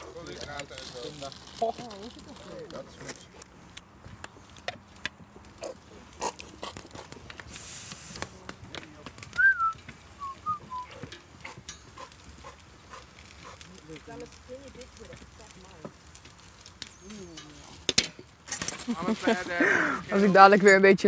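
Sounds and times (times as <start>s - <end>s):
whistle-like call: 9.4s - 11.0s.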